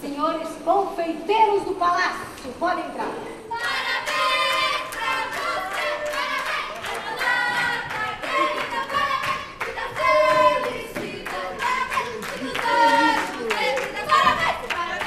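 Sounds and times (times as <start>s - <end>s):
group of voices singing a celebration song: 3.4s - 15.0s.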